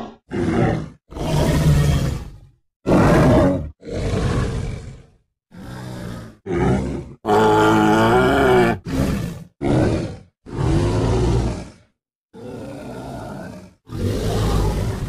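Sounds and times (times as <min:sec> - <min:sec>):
creature roars and grunts: 0:00.0 - 0:15.0.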